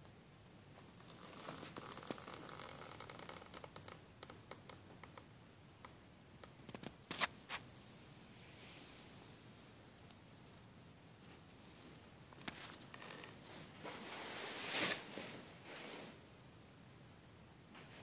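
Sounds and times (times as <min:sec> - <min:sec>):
soft rustling and scratching: 0:00.8 - 0:05.3, 0:06.4 - 0:16.2.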